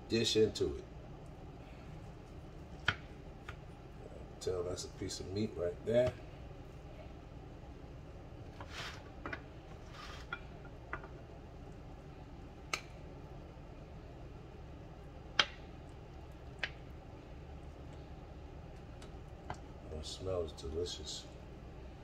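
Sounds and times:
utensil scraping food: 8.5s - 9.1s, 9.8s - 10.5s.

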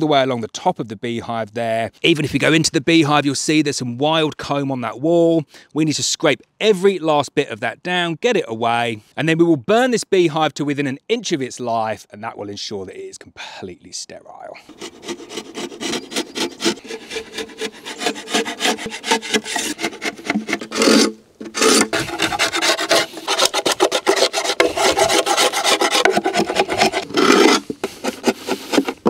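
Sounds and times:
metal tool scraping wood: 14.6s - 29.0s.

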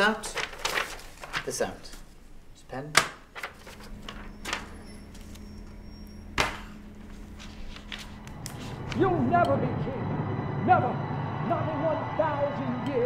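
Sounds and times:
steady low hum: 3.7s - 13.0s.

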